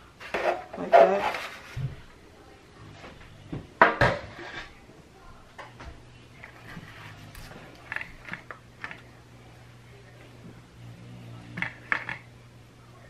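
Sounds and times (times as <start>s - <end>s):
faint steady hum: 0.0s - 13.0s
brush scraping and tapping bowl: 0.2s - 1.9s, 6.4s - 9.0s.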